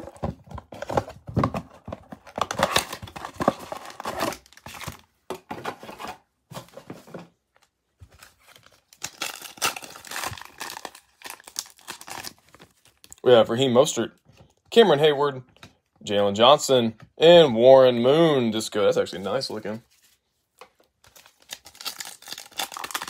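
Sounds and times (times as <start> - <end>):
foil pack crinkling and tearing: 8.6 - 13.2, 21.1 - 23.0.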